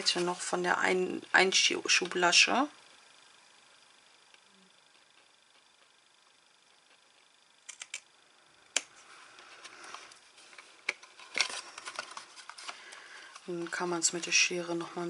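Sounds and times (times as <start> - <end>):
scissors snipping card: 7.7 - 8.0
card rustling: 9.4 - 14.0.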